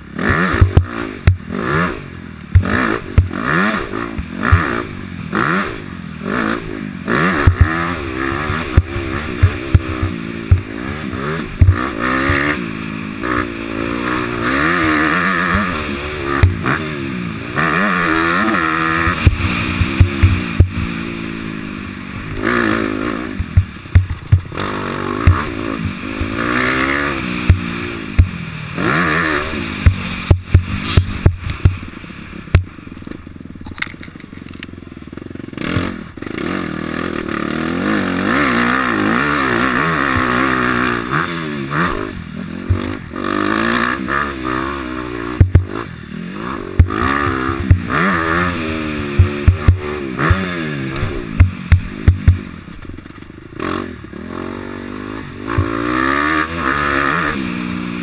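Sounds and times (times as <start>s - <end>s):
motocross bike engine revving: 0.0s - 58.0s
sharp knocks over bumps: 0.5s - 1.5s, 2.5s - 3.4s, 4.1s - 4.9s, 7.3s - 12.6s, 14.3s - 16.8s, 18.5s - 21.0s, 23.3s - 28.4s, 29.8s - 31.9s, 32.5s - 34.6s, 39.7s - 40.9s, 42.6s - 43.0s, 45.4s - 45.8s, 46.8s - 53.3s, 55.5s - 56.1s.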